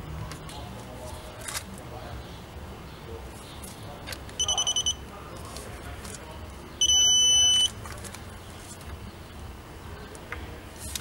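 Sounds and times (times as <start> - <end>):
short high electronic beeps: 4.4 - 5.0, 6.8 - 7.7
long steady electronic beep: 4.4 - 5.1, 6.8 - 7.7.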